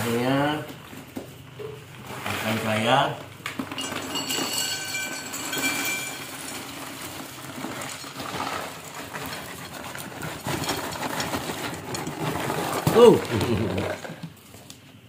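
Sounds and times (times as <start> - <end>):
peanuts rattling onto a plate: 2.2 - 14.2.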